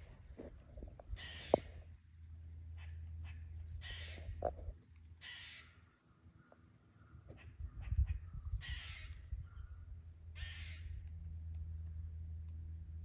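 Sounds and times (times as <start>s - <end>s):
low rumble on microphone: 0.0s - 5.3s, 6.4s - 13.0s
crows cawing: 1.1s - 1.8s, 2.8s - 4.6s, 5.2s - 9.8s, 10.4s - 11.0s.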